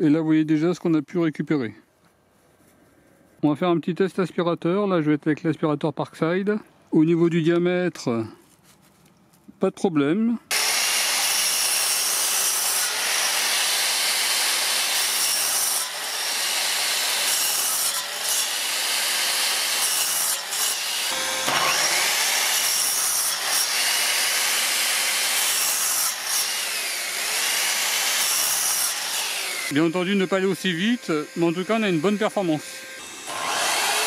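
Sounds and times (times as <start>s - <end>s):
mitre saw cutting wood: 10.5s - 34.0s
vacuum running: 21.1s - 22.4s.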